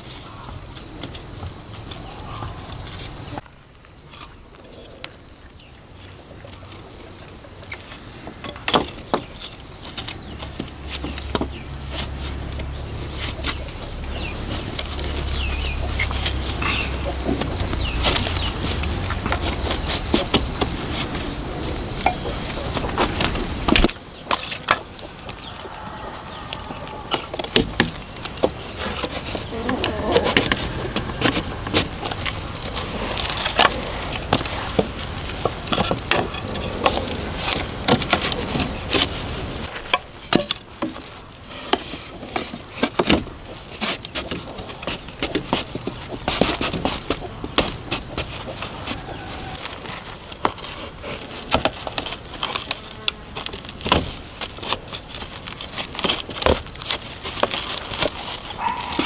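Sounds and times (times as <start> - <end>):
bamboo strips clattering: 0.0 - 59.0
insect buzzing: 9.3 - 41.7.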